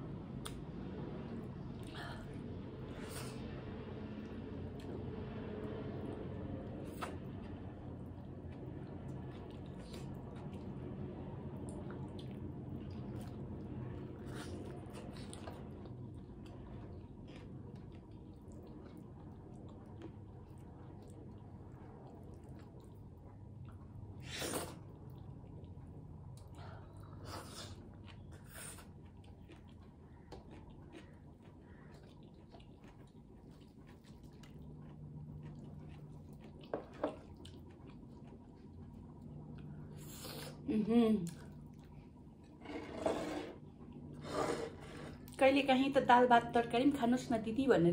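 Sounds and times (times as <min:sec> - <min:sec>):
steady low hum: 0:00.0 - 0:47.9
person chewing with smacking: 0:06.0 - 0:42.7.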